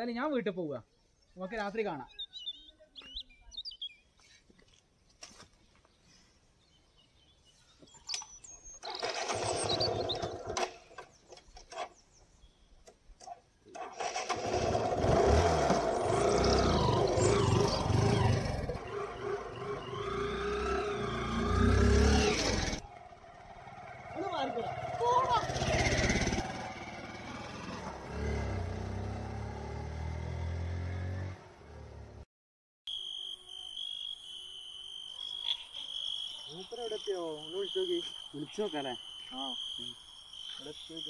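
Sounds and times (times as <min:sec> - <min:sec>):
motorcycle engine running: 0:14.4 - 0:30.9.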